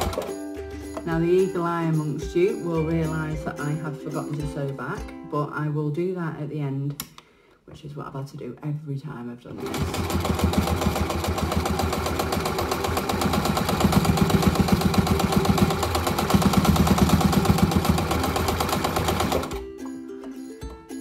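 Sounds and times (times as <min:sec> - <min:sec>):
sewing machine stitching: 0:00.0 - 0:00.4, 0:09.5 - 0:19.6.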